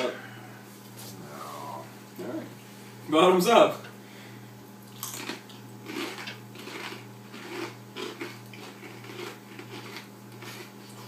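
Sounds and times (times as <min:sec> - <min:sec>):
steady low hum: 0:00.0 - 0:11.0
chips crunching while chewed: 0:04.9 - 0:11.0.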